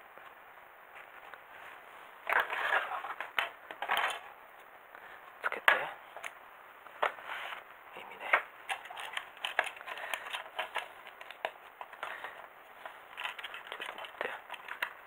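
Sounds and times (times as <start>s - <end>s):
plastic parts clicking and tapping: 8.3s - 15.0s.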